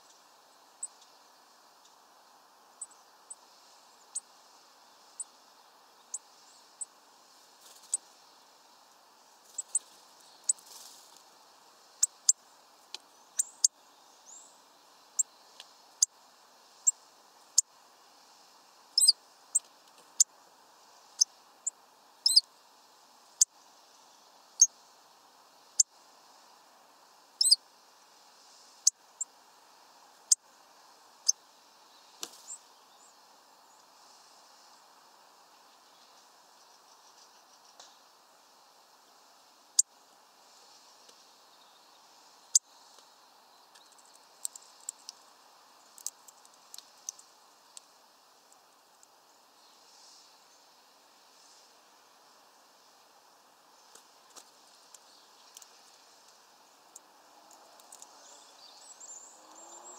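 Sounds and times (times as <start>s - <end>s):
faint hiss: 0.0s - 59.9s
birds calling sharp tic notes: 12.0s - 16.2s, 19.0s - 20.3s, 21.2s - 22.4s.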